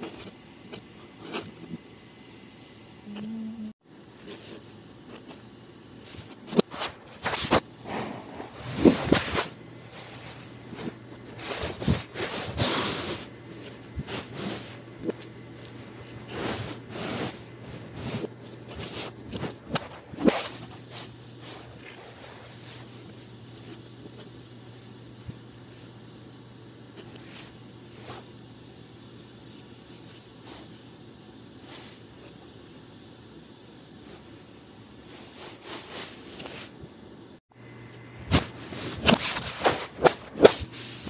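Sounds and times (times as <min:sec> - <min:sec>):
faint steady hum: 0:00.0 - 0:41.0
hands rubbing play dough: 0:06.0 - 0:26.0.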